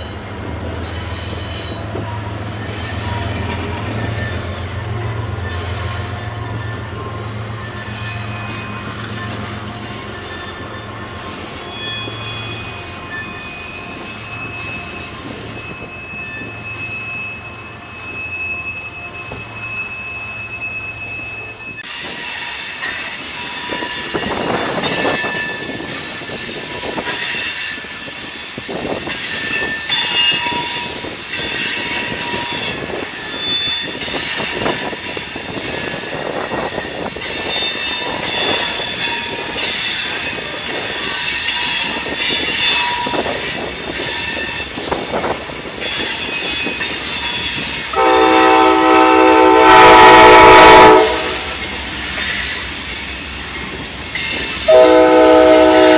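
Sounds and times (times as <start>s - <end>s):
train wheels squealing: 0.0s - 55.9s
train horn: 47.9s - 51.6s, 54.7s - 55.9s.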